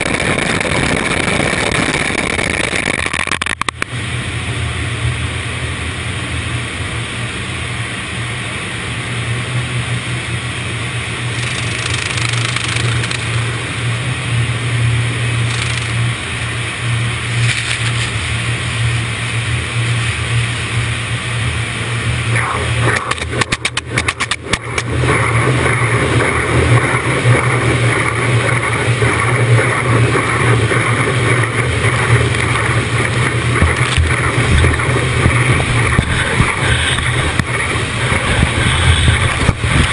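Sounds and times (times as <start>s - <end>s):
quick clicks: 0.0s - 3.9s, 11.4s - 13.3s, 15.5s - 16.0s, 22.8s - 24.9s
low hum: 0.0s - 39.9s
car wash rushing: 18.0s - 39.9s.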